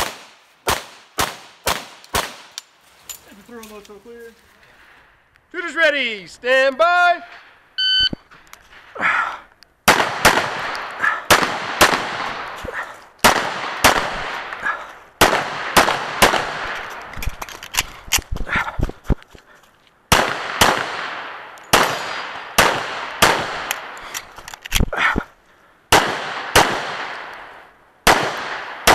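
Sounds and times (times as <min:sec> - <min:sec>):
pistol shots: 0:00.0 - 0:02.6, 0:09.9 - 0:12.6, 0:13.2 - 0:14.6, 0:15.2 - 0:16.9, 0:20.1 - 0:24.0, 0:25.9 - 0:28.9.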